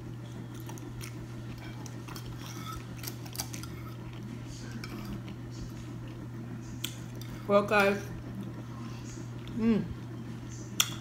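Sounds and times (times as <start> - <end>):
fork scraping on plate: 1.5 - 5.3.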